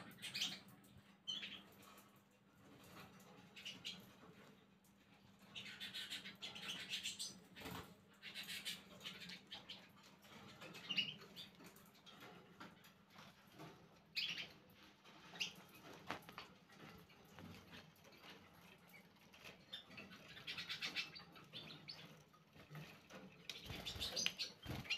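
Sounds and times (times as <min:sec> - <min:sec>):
canaries chirping and twittering: 0:00.0 - 0:24.9
wing flutters: 0:10.4 - 0:24.9.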